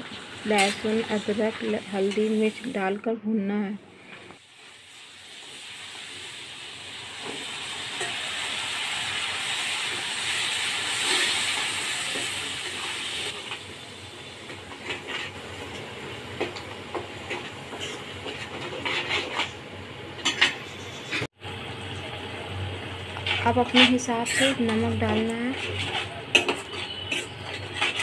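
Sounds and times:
paste sizzling in hot oil: 0:04.4 - 0:15.5
steel spoon scraping a pan: 0:14.7 - 0:15.4, 0:17.3 - 0:19.6, 0:20.2 - 0:21.3, 0:23.2 - 0:28.0.

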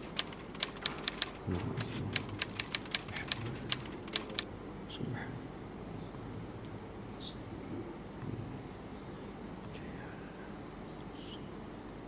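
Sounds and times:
typewriter key clicks: 0:00.0 - 0:04.4.

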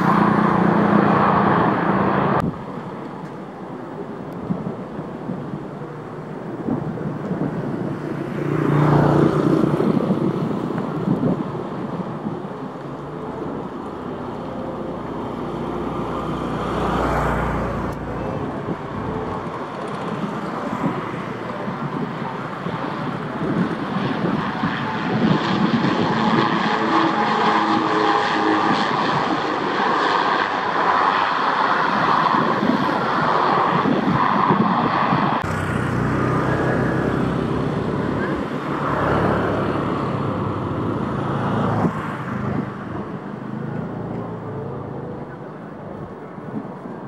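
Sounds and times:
turboprop engines droning: 0:00.0 - 0:08.4, 0:17.6 - 0:41.8.

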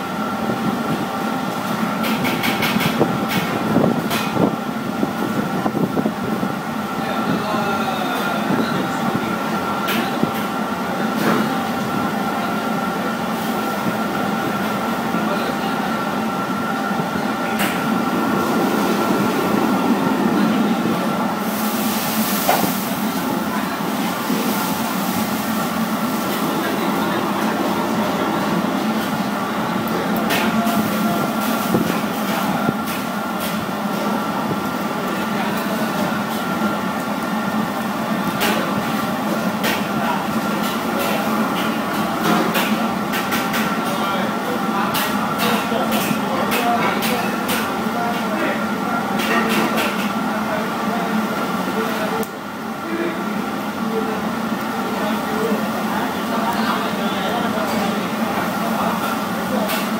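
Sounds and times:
mechanical hum and hiss: 0:00.0 - 0:59.9
faint background voices: 0:22.5 - 0:33.0.

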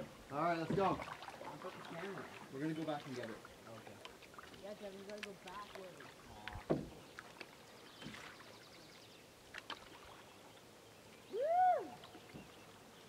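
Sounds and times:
paddle water splashes: 0:00.0 - 0:13.0
soft knocks: 0:06.6 - 0:07.0.

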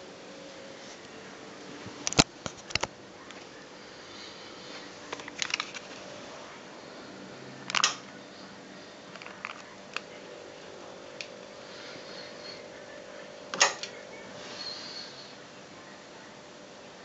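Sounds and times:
faint steady hum: 0:00.0 - 0:17.0
camcorder handling clicks and knocks: 0:07.7 - 0:08.0.

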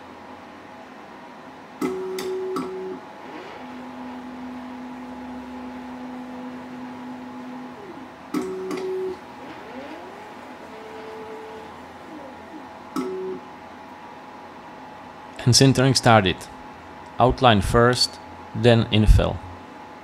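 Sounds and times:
steady background hum: 0:00.0 - 0:20.0
stepper motor whine: 0:01.9 - 0:13.5.

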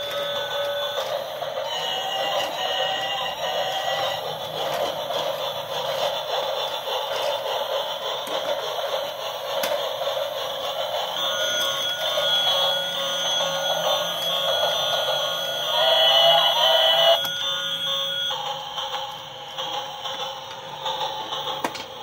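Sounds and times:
toy trains running: 0:00.0 - 0:22.0
electronic tunes from toy speakers: 0:11.1 - 0:18.7.

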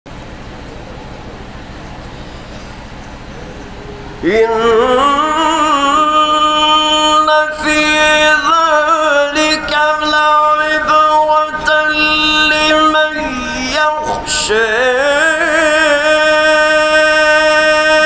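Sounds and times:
steady low hum: 0:00.1 - 0:18.0
man reciting melodically: 0:04.2 - 0:18.0.

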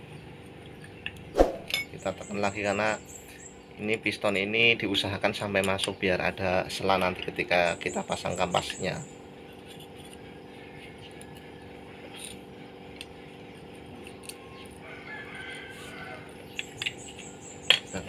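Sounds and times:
rooster crowing faintly: 0:14.3 - 0:16.5.

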